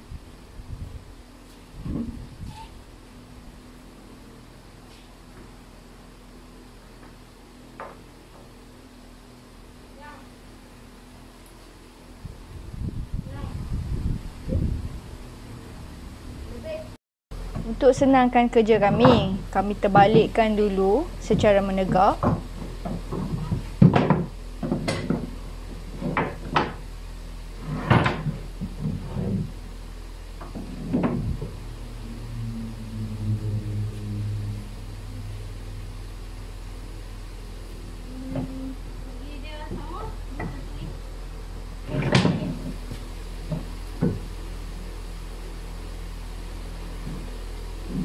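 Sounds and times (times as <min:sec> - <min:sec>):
steady low hum: 0:00.0 - 0:48.0
wood knocking on wood: 0:21.3 - 0:26.8.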